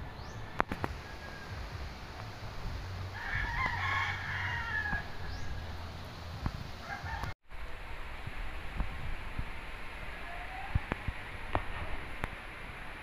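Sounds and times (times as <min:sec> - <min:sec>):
rooster crowing: 0:00.3 - 0:01.9, 0:03.1 - 0:05.7, 0:06.8 - 0:07.4.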